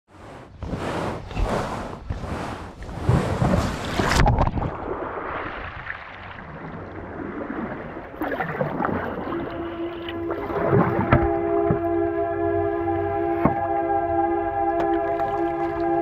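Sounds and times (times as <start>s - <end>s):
paddle strokes splashing water: 0.1s - 13.9s, 14.7s - 16.0s
water sloshing along hull: 0.1s - 16.0s
background music tone: 9.2s - 16.0s.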